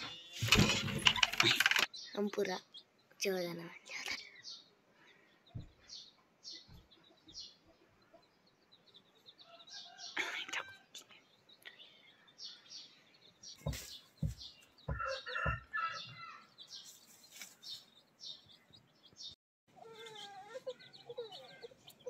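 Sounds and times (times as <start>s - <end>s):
chicks peeping: 4.5s - 22.0s
muffled thumps: 13.6s - 15.7s.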